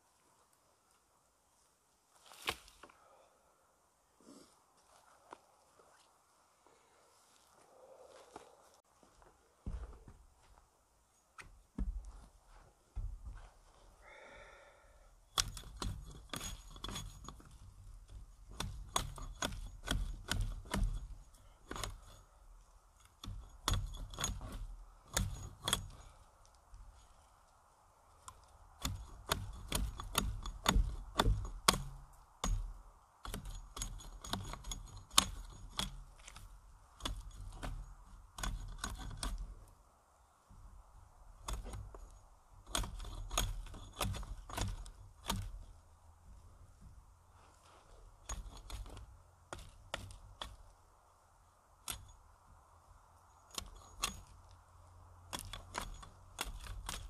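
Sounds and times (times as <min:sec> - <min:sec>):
twigs rustling: 0:00.0 - 0:03.0, 0:15.4 - 0:52.4
twigs snapping: 0:02.3 - 0:02.9.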